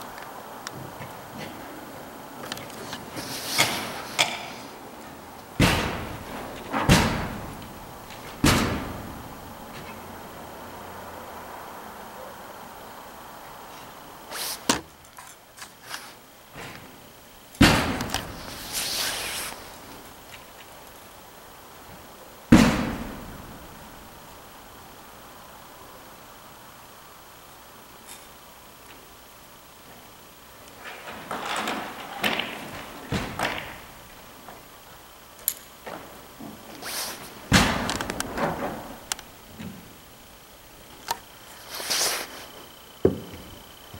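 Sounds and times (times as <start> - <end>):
ice axes knocking and scraping: 2.4 - 4.7.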